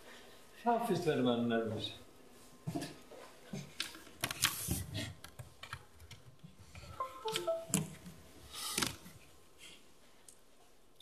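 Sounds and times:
stepping tones: 0:06.9 - 0:08.1
laptop keyboard typing: 0:07.0 - 0:08.0.

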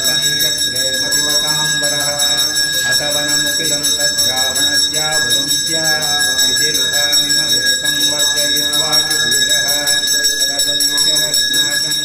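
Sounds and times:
temple bell clanging: 0:00.0 - 0:12.0
voices chanting: 0:00.0 - 0:12.0.

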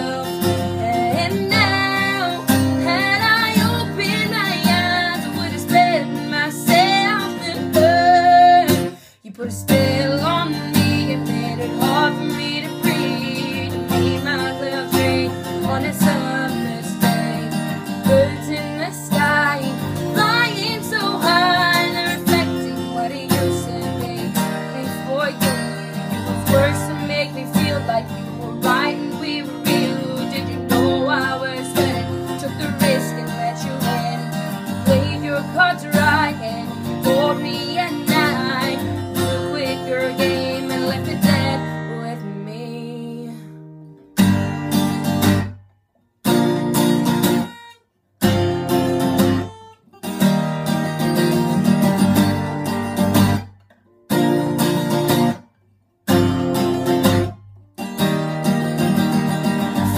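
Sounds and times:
woman singing: 0:00.0 - 0:43.6, 0:58.1 - 0:59.9
acoustic guitar strummed: 0:00.0 - 0:59.9.

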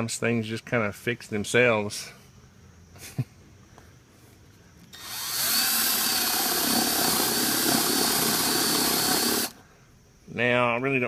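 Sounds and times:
cordless drill boring into wood: 0:04.9 - 0:09.6.

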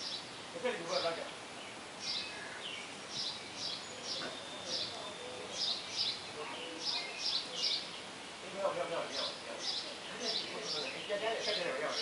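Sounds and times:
baby birds peeping: 0:00.0 - 0:08.2.

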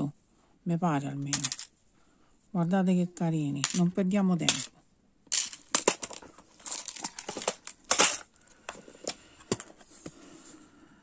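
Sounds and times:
metal charms rattling in plastic box: 0:01.3 - 0:01.7, 0:03.6 - 0:04.7, 0:05.3 - 0:08.3.

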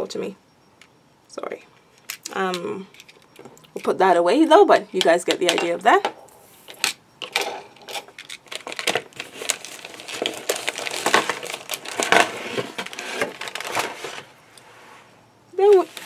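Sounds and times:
packaging rustling and crinkling: 0:06.6 - 0:14.4.

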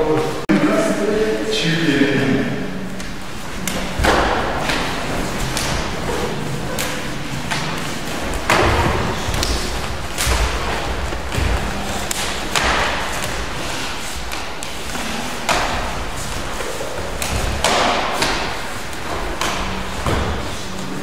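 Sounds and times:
bare feet stamping on wooden floor: 0:07.5 - 0:20.6.

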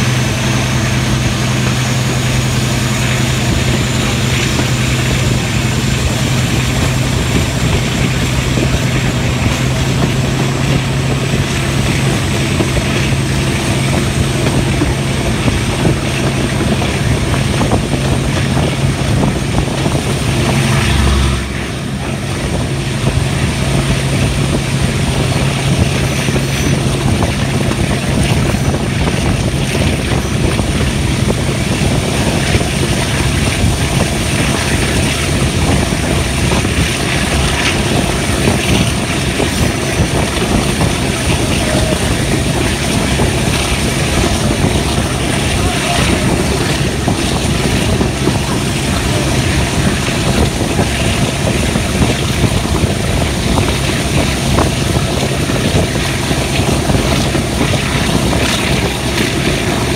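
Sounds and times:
diesel train engine drone: 0:00.0 - 0:59.9
train rushing running noise: 0:00.0 - 0:59.9
faint high whine rising: 0:20.0 - 0:23.6.

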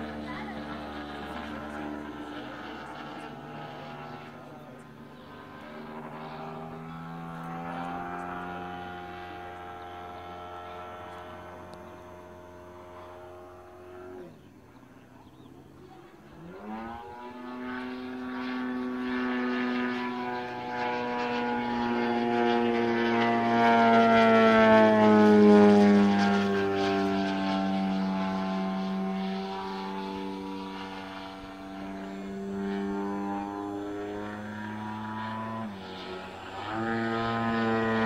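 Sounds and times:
model plane engine and propeller: 0:00.0 - 0:38.0.

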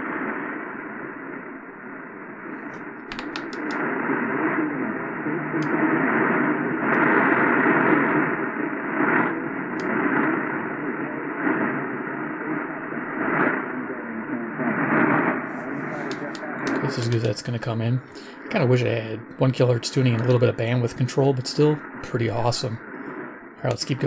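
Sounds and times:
radio static: 0:00.0 - 0:24.0
sharp clicks: 0:02.6 - 0:03.9, 0:16.1 - 0:17.4
faint distant radio station: 0:02.6 - 0:24.0.

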